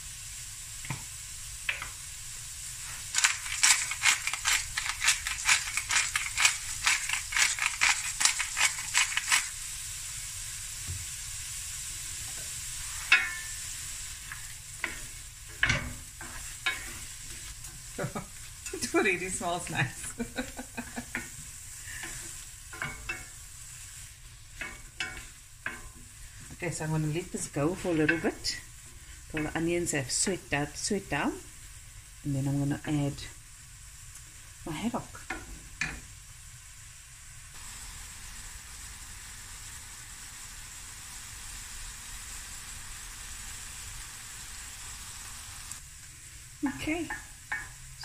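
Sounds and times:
vegetables sizzling in a pan: 0.0 - 48.0
wooden spoon scraping a pan: 2.8 - 9.5, 14.2 - 29.7.

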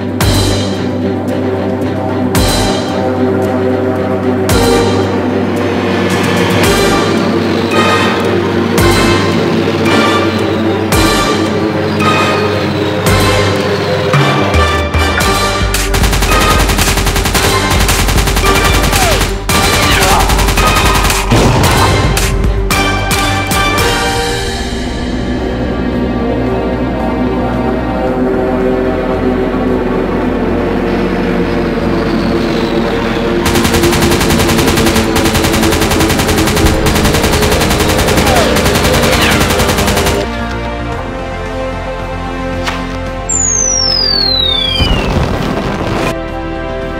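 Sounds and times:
steady drone: 0.0 - 19.7, 24.2 - 42.2
dramatic soundtrack music: 0.0 - 46.9
machine-gun fire: 15.8 - 21.9, 33.4 - 40.4
falling whistle: 43.3 - 45.2.

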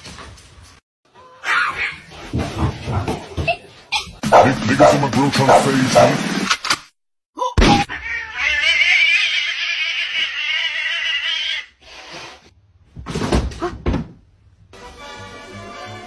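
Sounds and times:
cat yowling: 1.2 - 2.0, 7.7 - 11.7.

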